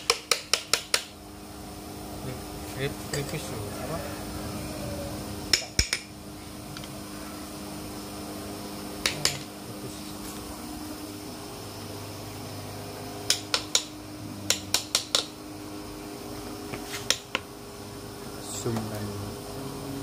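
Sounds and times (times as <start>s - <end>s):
steady machine hum: 0.0s - 20.0s
metallic tool clicks and taps: 5.5s - 6.1s, 9.0s - 9.5s, 13.2s - 13.9s, 14.5s - 15.3s.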